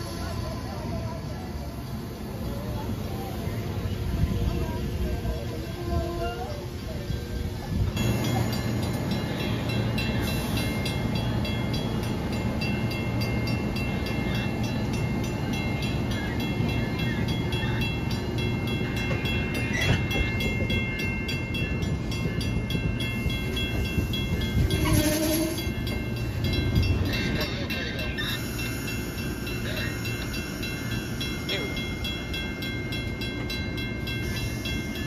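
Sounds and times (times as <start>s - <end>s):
train wheels rumbling on rails: 0.0s - 35.0s.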